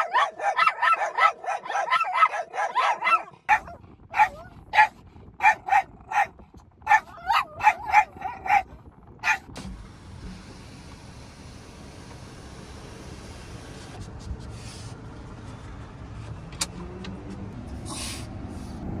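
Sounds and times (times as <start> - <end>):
small dog yapping: 0.0 - 6.3, 6.9 - 9.4.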